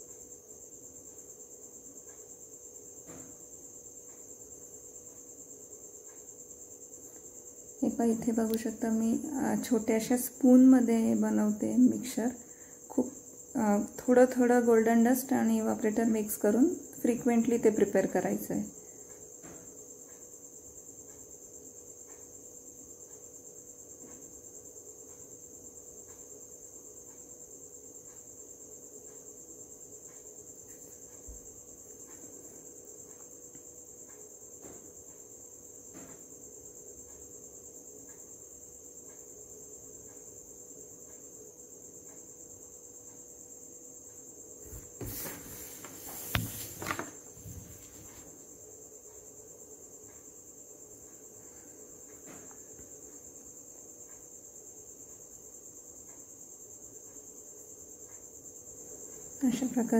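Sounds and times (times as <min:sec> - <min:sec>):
rustling handling noise: 0:44.6 - 0:48.3.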